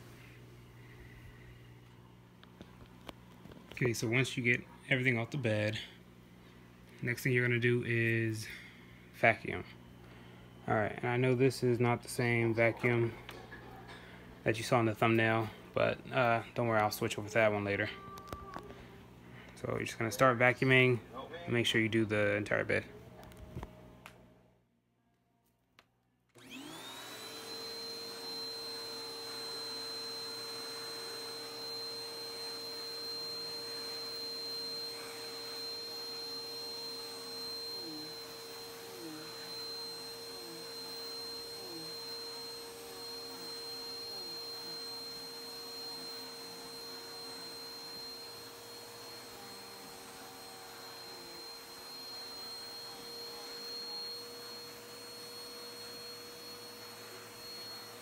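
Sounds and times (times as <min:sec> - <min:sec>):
vacuum cleaner motor whine: 0:00.0 - 0:23.4, 0:26.3 - 0:58.0
vacuum nozzle on mattress: 0:26.4 - 0:58.0.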